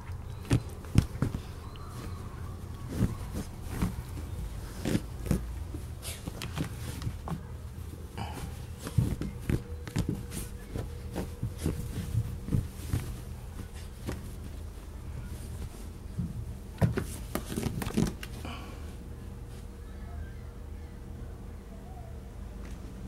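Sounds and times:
puppy digging at fabric bed: 0.0 - 7.5, 8.4 - 14.7.

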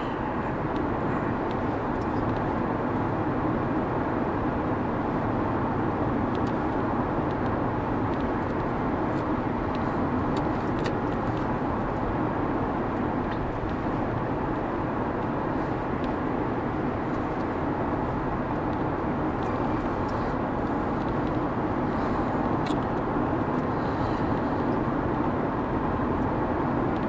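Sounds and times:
car engine at light load: 0.0 - 27.0
low tyre rumble: 0.0 - 27.0.

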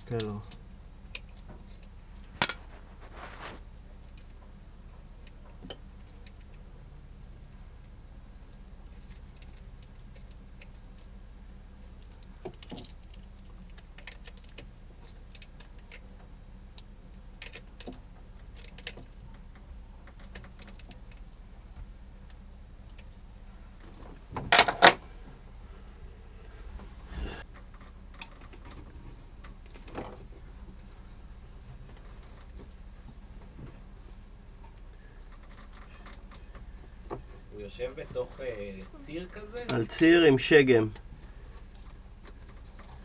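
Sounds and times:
hand tools clinking on metal: 2.4 - 2.7.

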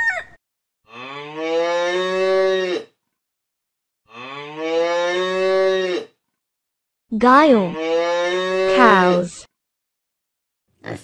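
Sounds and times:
cattle mooing: 0.9 - 2.8, 4.1 - 6.1, 7.7 - 9.2.

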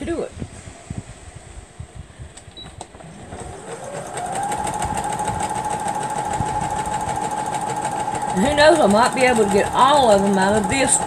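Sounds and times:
sewing machine running: 3.1 - 11.0.

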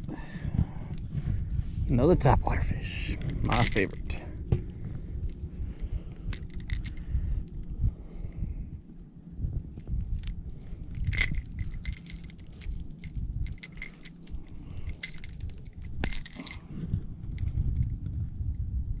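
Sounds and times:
low rumble: 0.0 - 19.0
fishing lure hooks clinking: 3.4 - 4.2, 10.9 - 16.7.

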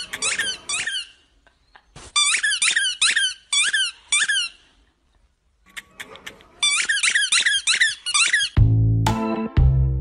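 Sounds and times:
dog squeaking toy ball: 0.0 - 1.3, 2.1 - 4.7, 5.7 - 8.6.

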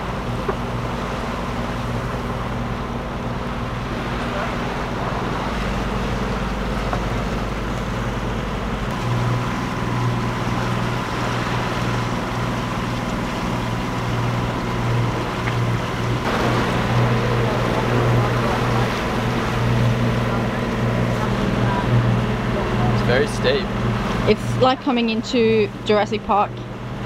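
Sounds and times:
diesel engine running: 0.0 - 27.0
sea waves: 0.0 - 27.0
wind: 0.0 - 27.0.

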